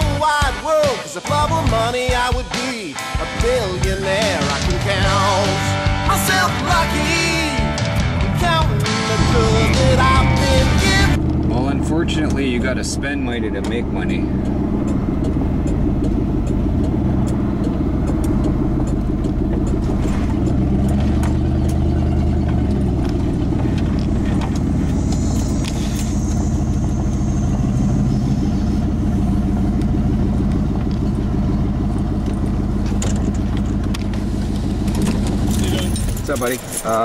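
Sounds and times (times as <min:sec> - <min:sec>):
truck engine and road noise: 0:03.0 - 0:37.0
faint high squeal: 0:24.8 - 0:29.4.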